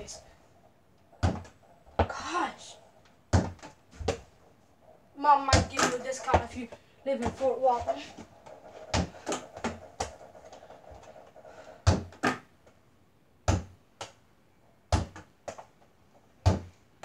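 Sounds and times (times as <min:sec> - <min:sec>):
ball bouncing on floor: 0:01.2 - 0:02.2, 0:03.3 - 0:04.3, 0:05.5 - 0:11.2, 0:11.8 - 0:12.5, 0:13.4 - 0:14.2, 0:14.9 - 0:15.7, 0:16.4 - 0:16.8.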